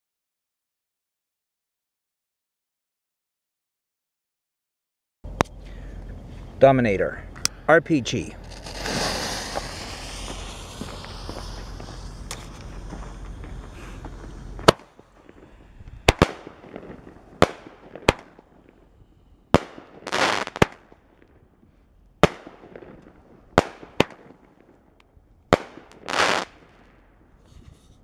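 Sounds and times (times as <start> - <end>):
firework fuse rustling: 8.0 - 18.8, 19.5 - 21.0, 25.6 - 26.6
firework hissing burst: 8.3 - 18.4, 19.5 - 20.9, 25.7 - 26.6
firework bangs: 8.3 - 21.3, 22.2 - 24.8, 25.5 - 27.0.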